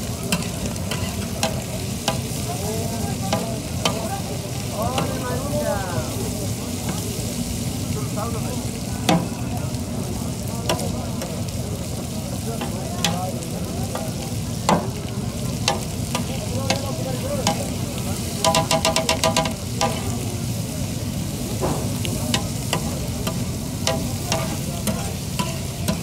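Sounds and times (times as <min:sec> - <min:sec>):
liver sizzling on a griddle: 0:00.0 - 0:26.0
spatula clanking on griddle: 0:00.2 - 0:06.2, 0:06.8 - 0:07.2, 0:09.0 - 0:09.5, 0:10.6 - 0:11.4, 0:12.5 - 0:20.3, 0:21.5 - 0:26.0
metal spatula scraping griddle: 0:00.3 - 0:02.3, 0:21.7 - 0:26.0.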